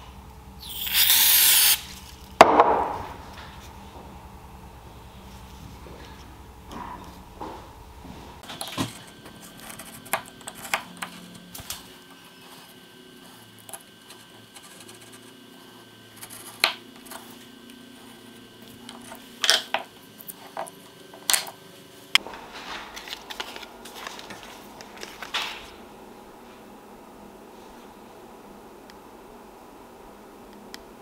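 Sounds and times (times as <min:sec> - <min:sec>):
knife scratching wood: 0:12.1 - 0:17.4.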